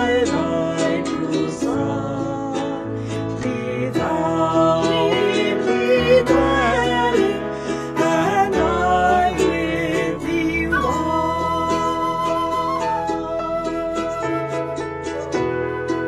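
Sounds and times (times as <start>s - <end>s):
man singing hymn: 0.0s - 11.2s.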